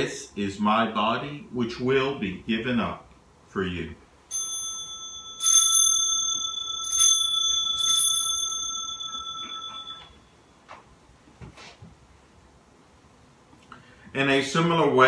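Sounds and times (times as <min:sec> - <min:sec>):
altar bell ringing: 0:04.3 - 0:10.6.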